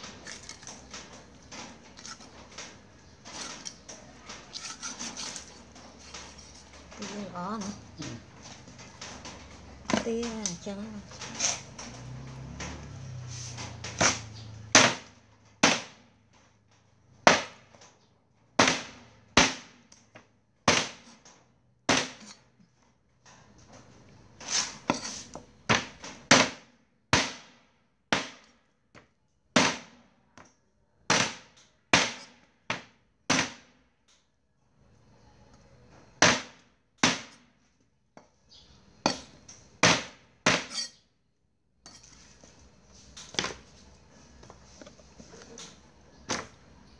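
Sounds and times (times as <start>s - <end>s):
cleaver chopping on wooden block: 14.0s - 16.0s, 21.9s - 22.4s, 39.1s - 40.9s.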